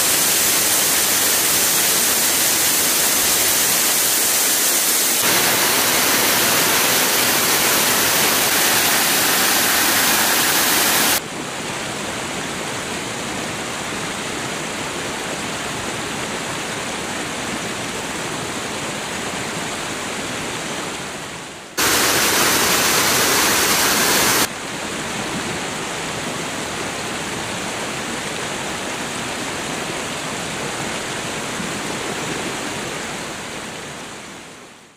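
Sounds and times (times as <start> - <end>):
waterfall pouring: 0.0 - 11.2, 21.8 - 24.5.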